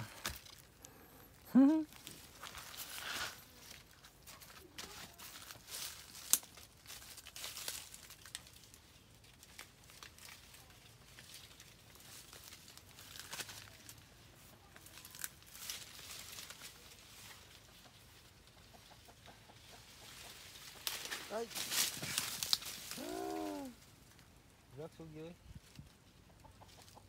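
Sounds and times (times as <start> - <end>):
leaves and twigs rustling: 0.0 - 27.0
twig snapping: 0.2 - 1.0, 6.1 - 6.7, 20.8 - 23.8.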